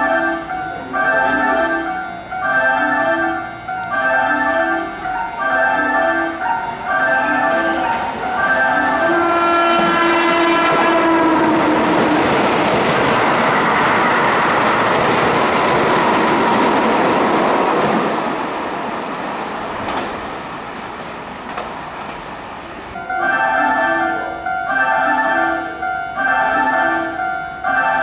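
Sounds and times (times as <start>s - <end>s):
train horn: 0.0s - 12.5s
train wheels on rails: 0.0s - 28.0s.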